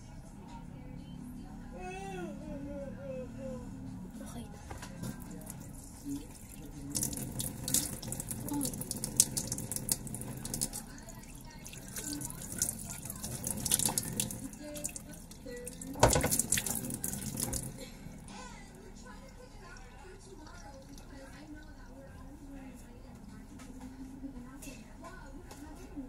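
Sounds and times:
tap water running into sink: 5.1 - 17.8.

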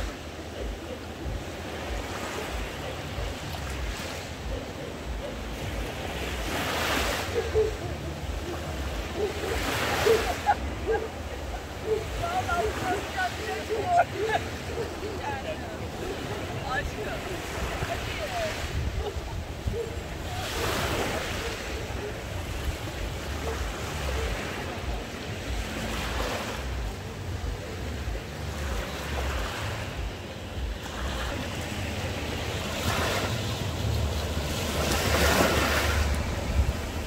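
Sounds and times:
sea waves breaking on beach: 0.0 - 37.0
wind rumbling on microphone: 0.0 - 37.0.

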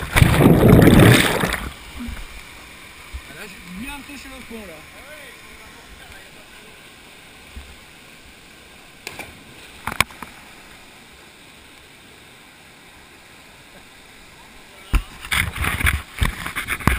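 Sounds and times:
waterfall pouring into pool: 0.0 - 7.2
water splashes: 0.0 - 11.9.

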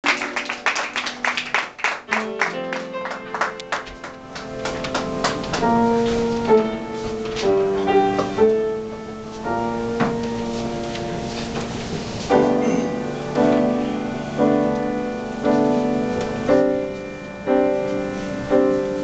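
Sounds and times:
audience clapping: 0.0 - 5.9.

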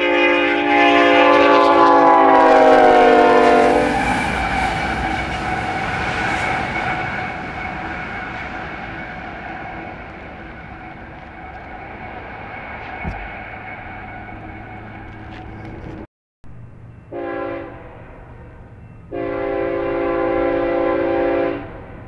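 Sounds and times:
locomotive air horn blast: 0.0 - 11.2, 17.1 - 18.0, 19.1 - 21.8
locomotive engines and wheels rumbling: 0.0 - 22.0.

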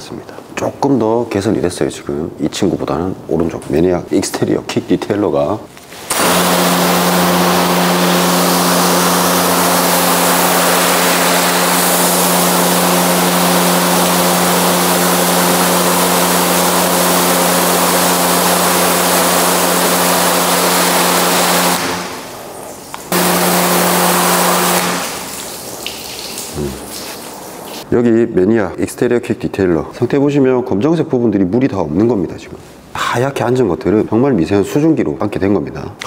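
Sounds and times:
pressure washer spray hissing: 6.0 - 27.9
steady hum: 6.1 - 25.9.

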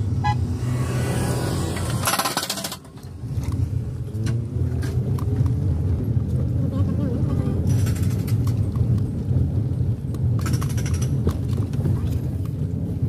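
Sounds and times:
tyres and engine rumbling: 0.0 - 13.0
short harsh rattle: 1.8 - 3.1.

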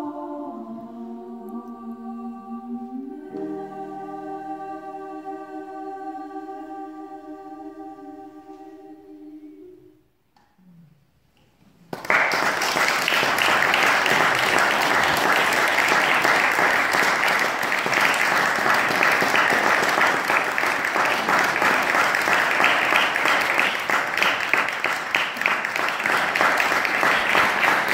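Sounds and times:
audience applauding: 11.9 - 27.9.

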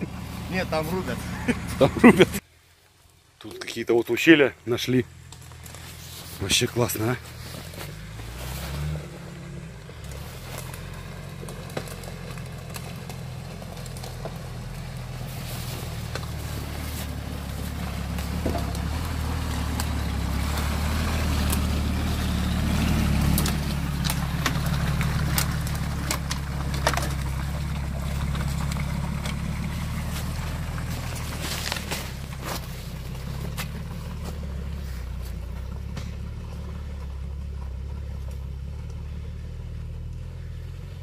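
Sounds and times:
suv engine running: 0.0 - 3.4, 4.2 - 41.0.

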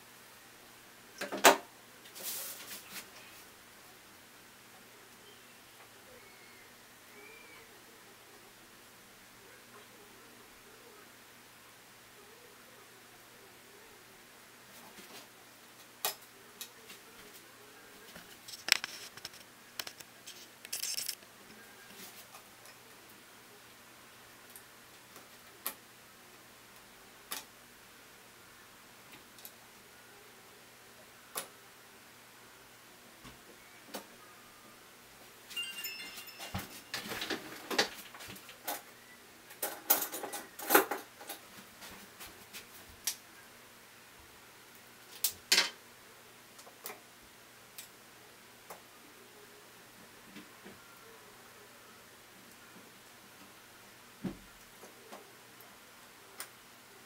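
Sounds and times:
short rustle: 2.1 - 3.2.

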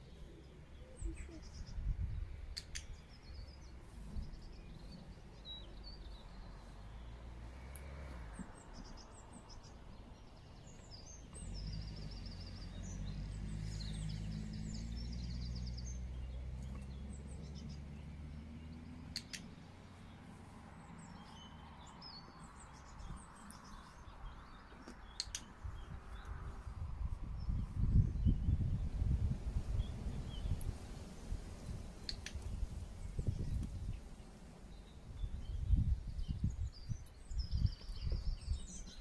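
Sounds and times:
small birds chirping: 0.0 - 39.0
sharp clicks: 2.5 - 3.1, 19.0 - 19.6, 24.8 - 25.6, 31.6 - 32.5.

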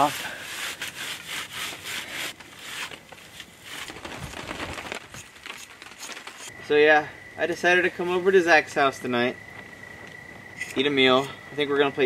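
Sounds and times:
hands rubbing over wooden sticks: 0.0 - 4.4.

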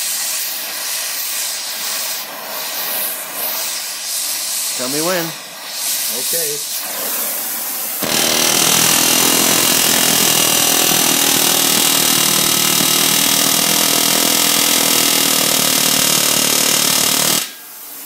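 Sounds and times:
torch flame hiss: 0.0 - 18.0
pneumatic rivet hammer hammering: 8.0 - 17.6.

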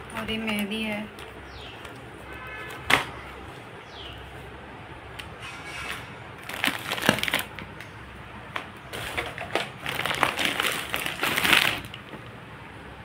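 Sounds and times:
plastic shopping bag rustling: 5.8 - 7.7, 8.9 - 12.3.

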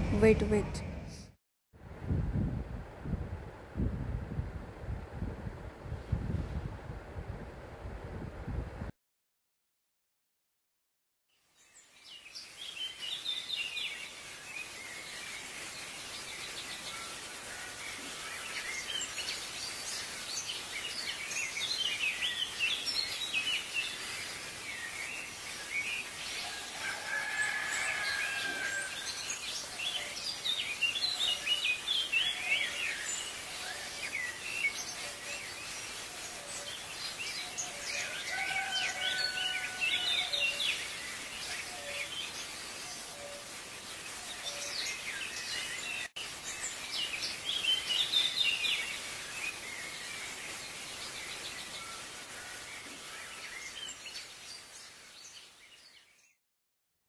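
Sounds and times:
outdoor hiss: 11.6 - 55.9
small birds chirping: 17.9 - 26.4, 38.8 - 56.1.

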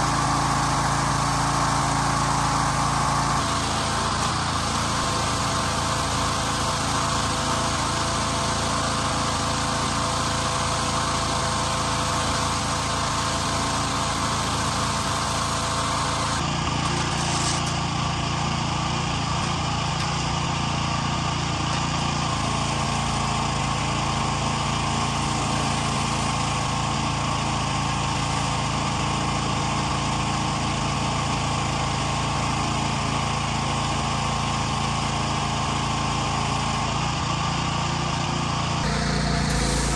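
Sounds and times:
small engine running: 0.0 - 39.9
high-pressure water jet hissing: 12.0 - 17.8, 38.8 - 39.9.

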